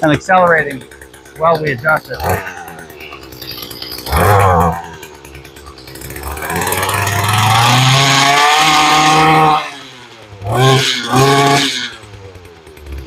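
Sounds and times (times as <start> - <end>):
two-stroke engine revving: 0.0 - 13.0.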